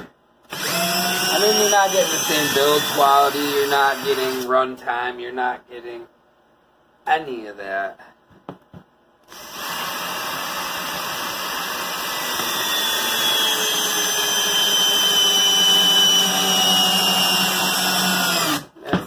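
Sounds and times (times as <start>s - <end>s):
drill clicks: 0.5s - 3.0s, 9.3s - 18.7s
cordless drill boring into wood: 0.5s - 4.5s, 9.3s - 18.7s.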